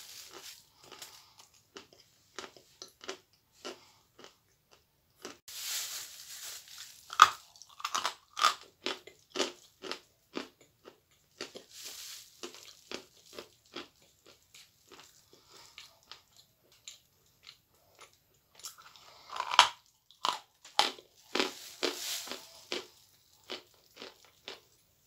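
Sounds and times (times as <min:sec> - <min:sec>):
chewing crumbly sweet: 0:00.0 - 0:05.5, 0:06.5 - 0:25.0
paper napkin rustling: 0:05.5 - 0:07.2, 0:21.4 - 0:22.7.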